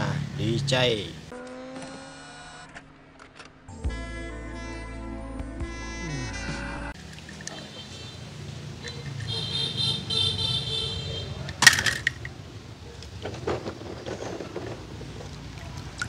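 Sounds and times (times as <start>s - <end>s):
water sloshing in tub: 14.7s - 16.0s.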